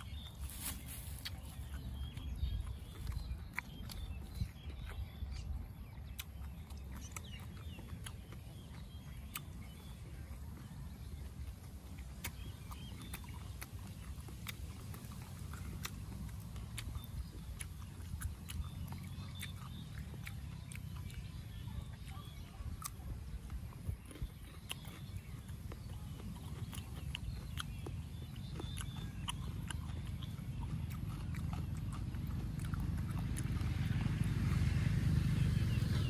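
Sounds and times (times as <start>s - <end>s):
chewing food: 0.0s - 36.0s.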